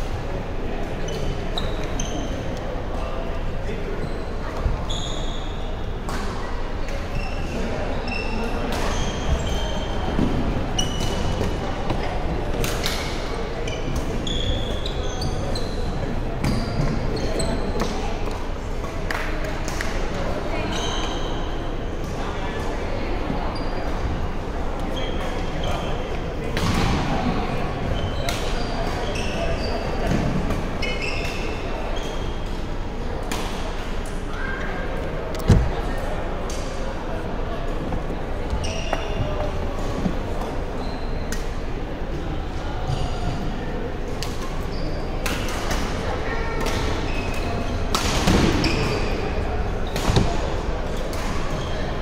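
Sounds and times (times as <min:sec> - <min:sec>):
sneakers squeaking on hardwood floor: 0:01.0 - 0:02.5, 0:03.9 - 0:06.0, 0:07.1 - 0:12.0, 0:13.6 - 0:18.0, 0:20.6 - 0:21.4, 0:24.9 - 0:32.8, 0:37.5 - 0:41.7, 0:44.2 - 0:45.3, 0:46.2 - 0:52.0.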